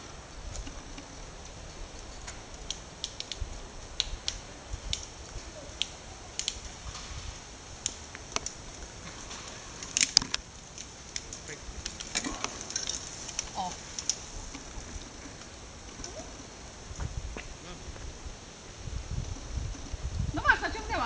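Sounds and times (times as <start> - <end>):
steady high hiss: 0.0 - 21.0
sharp clicks and crackles: 0.5 - 7.2, 7.8 - 17.1.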